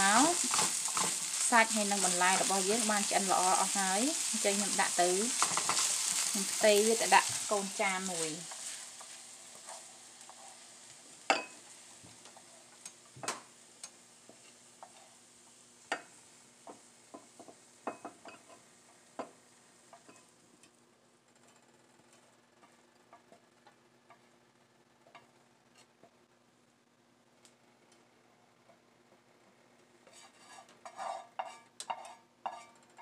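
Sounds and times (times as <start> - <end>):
faint sizzle: 0.0 - 33.0.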